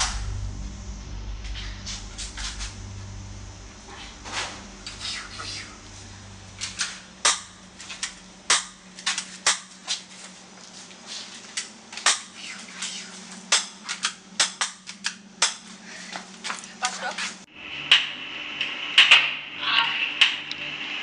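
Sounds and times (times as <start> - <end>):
low machinery hum: 0.0 - 21.0
toy pistol firing sharp cracks: 12.0 - 12.4, 13.5 - 15.6.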